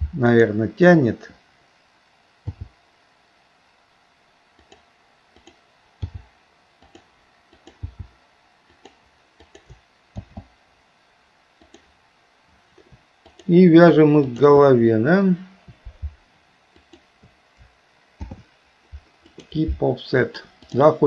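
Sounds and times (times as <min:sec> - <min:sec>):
mouse and keyboard clicks: 0:05.4 - 0:06.2, 0:06.8 - 0:08.1, 0:08.7 - 0:10.5, 0:12.8 - 0:13.5, 0:18.2 - 0:18.4, 0:19.2 - 0:19.6.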